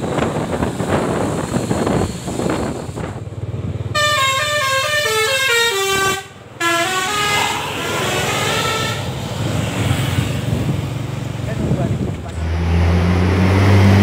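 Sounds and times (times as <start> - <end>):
bus engine rumbling: 0.0 - 14.0
multi-tone bus horn melody: 3.9 - 9.2.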